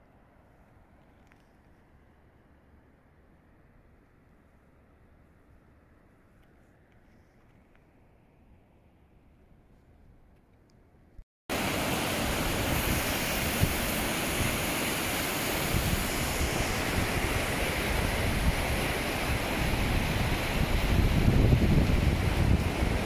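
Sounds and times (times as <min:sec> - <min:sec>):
stream rushing: 0:11.5 - 0:23.0
wind on microphone: 0:11.6 - 0:23.0.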